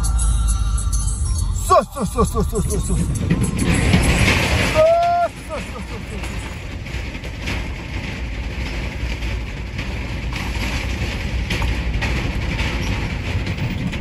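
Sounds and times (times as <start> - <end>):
engine and tyre rumble: 2.5 - 14.0
deck plates knocking and rattling: 2.8 - 14.0.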